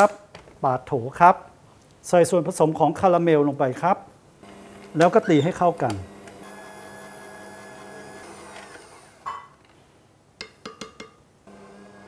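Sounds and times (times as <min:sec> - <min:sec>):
stand mixer motor humming: 0:04.4 - 0:09.2, 0:11.5 - 0:12.0.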